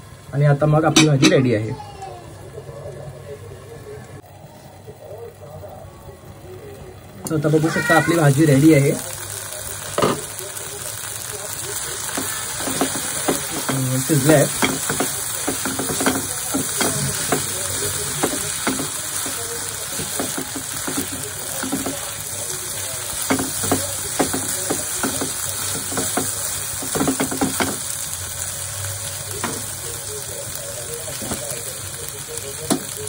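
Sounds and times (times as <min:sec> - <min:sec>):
food sizzling in a frying pan: 0:04.0 - 0:33.0
spatula scraping and tapping pan: 0:12.1 - 0:22.2, 0:23.1 - 0:27.9.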